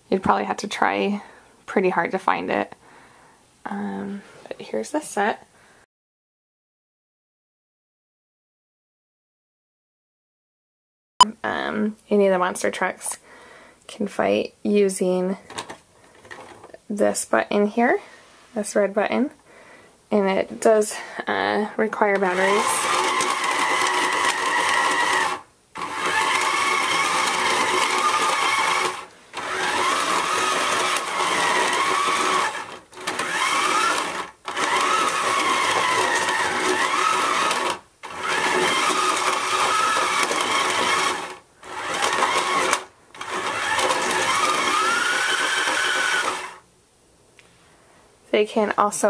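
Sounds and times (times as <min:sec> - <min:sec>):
plastic toy trucks rattling: 0:15.5 - 0:16.8, 0:22.2 - 0:46.6
toy motor whirring: 0:22.1 - 0:46.6.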